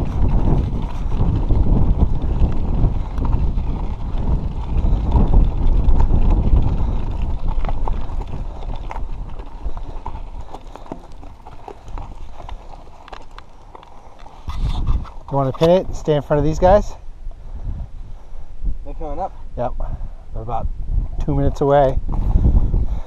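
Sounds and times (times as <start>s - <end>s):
bike rattling over rocks: 0.0s - 16.8s
tyres crunching on loose stones: 0.0s - 16.8s
wind rumble on microphone: 0.0s - 23.0s.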